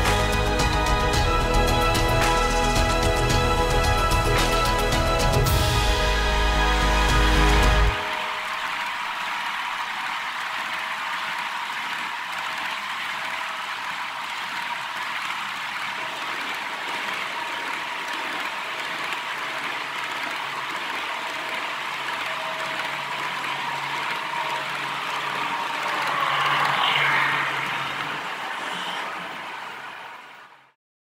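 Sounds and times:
model train wheels on rails: 0:11.2 - 0:30.7.

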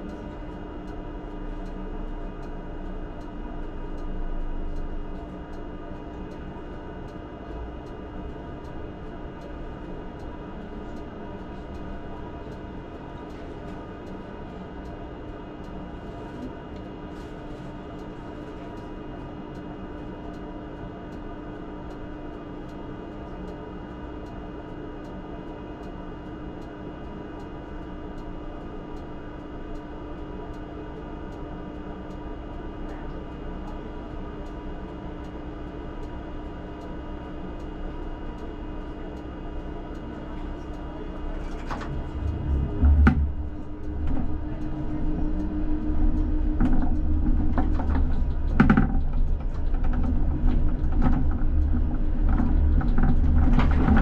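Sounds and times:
constant hum: 0:00.0 - 0:54.0
tram rumbling: 0:38.3 - 0:54.0.

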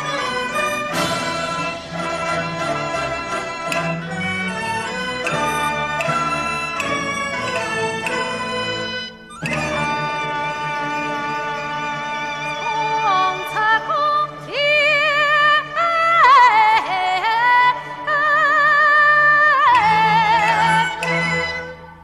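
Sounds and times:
traditional orchestra chords: 0:00.0 - 0:15.7.

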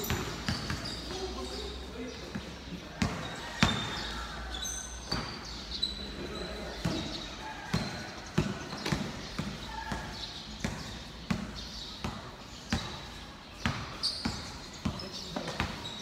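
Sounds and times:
basketball bouncing on concrete: 0:00.0 - 0:01.1, 0:02.3 - 0:04.0, 0:06.8 - 0:16.0.

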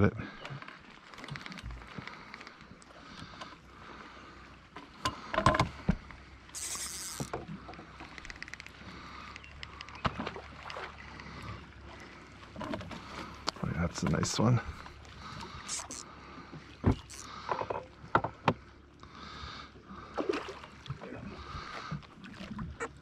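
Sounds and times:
water lapping at hull: 0:00.0 - 0:23.0
short hiss: 0:06.6 - 0:07.3.

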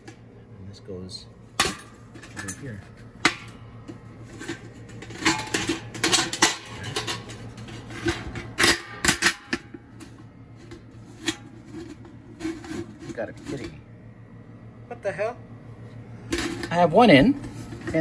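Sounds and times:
sheet metal clinking and scraping: 0:01.6 - 0:13.9.

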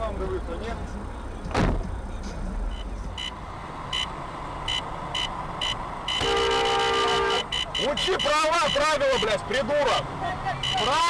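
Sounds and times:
engine and road rumble: 0:00.0 - 0:11.0
sharp thump: 0:01.5 - 0:02.0
car horn: 0:04.7 - 0:11.0.

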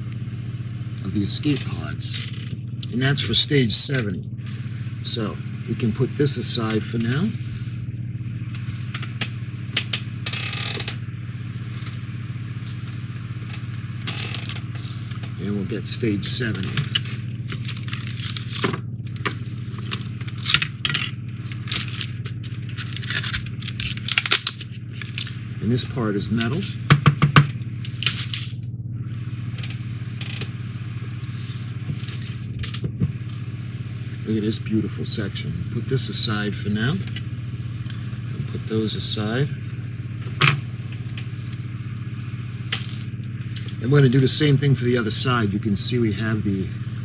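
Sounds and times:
low background hum: 0:00.0 - 0:47.0
plastic packaging crinkle: 0:17.6 - 0:18.7, 0:21.5 - 0:25.3, 0:27.9 - 0:28.6.

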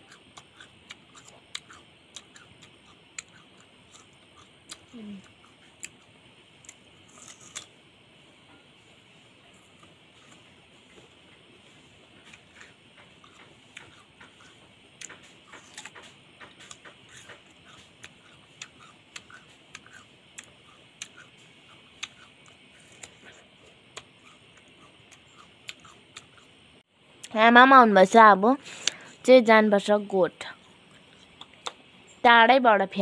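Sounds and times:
chewing crisp pear: 0:00.0 - 0:07.8, 0:09.4 - 0:27.3.

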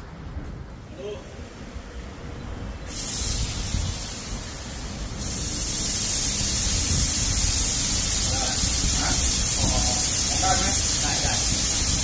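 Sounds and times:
high pressure water spray hiss: 0:02.8 - 0:12.0.

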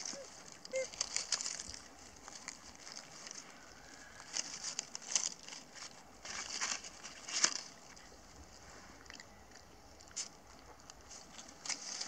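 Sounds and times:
dry leaves crackling and rustling: 0:00.0 - 0:08.1, 0:11.0 - 0:12.0.

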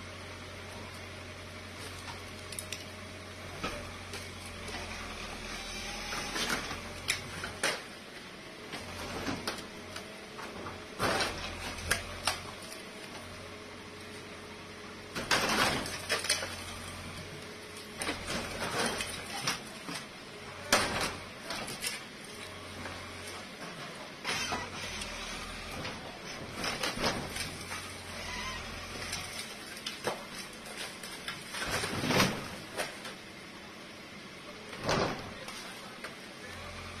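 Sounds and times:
bulldozer engine humming: 0:00.0 - 0:37.0
wall crashing and debris falling: 0:15.2 - 0:16.7, 0:29.0 - 0:33.0.

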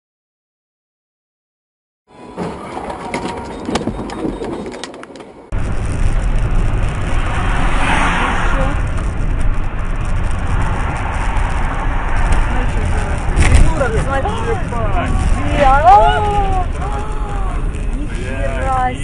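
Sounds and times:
car road and engine noise: 0:02.1 - 0:19.0.

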